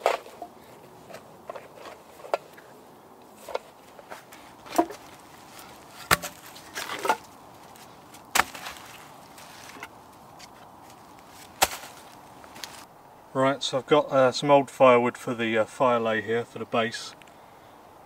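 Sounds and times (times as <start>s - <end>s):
leaves rustling: 0.0s - 13.2s
logs knocking on ground: 3.5s - 10.5s, 11.5s - 12.8s.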